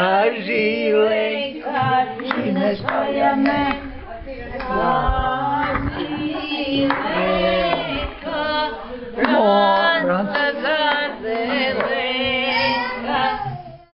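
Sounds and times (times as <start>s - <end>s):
group singing unaccompanied: 0.0s - 13.9s.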